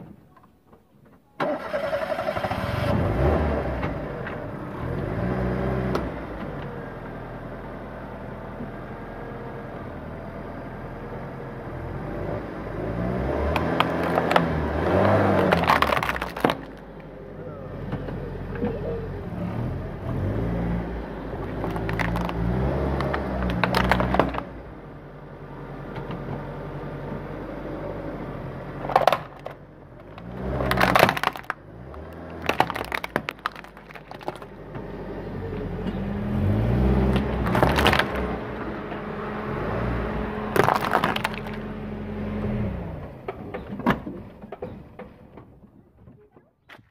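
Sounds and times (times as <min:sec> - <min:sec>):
plastic toys cracking under tyres: 0:13.4 - 0:17.1, 0:21.4 - 0:24.6, 0:28.8 - 0:34.7, 0:37.0 - 0:38.5, 0:40.5 - 0:41.7
car engine running: 0:20.9 - 0:25.5, 0:28.3 - 0:39.0, 0:40.2 - 0:42.2.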